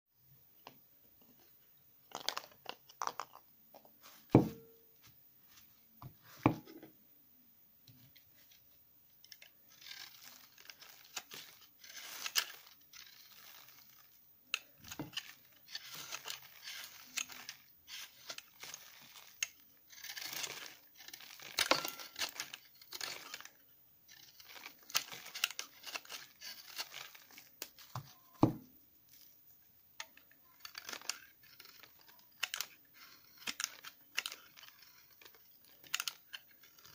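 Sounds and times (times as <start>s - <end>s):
knife scraping soap: 9.3s - 14.1s, 14.8s - 27.4s, 30.0s - 36.9s.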